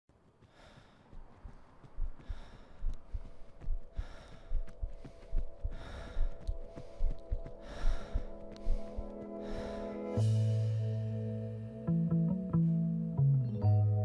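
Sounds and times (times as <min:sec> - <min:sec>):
man breathing heavily: 0:00.2 - 0:10.6
steady musical tones: 0:03.8 - 0:14.0.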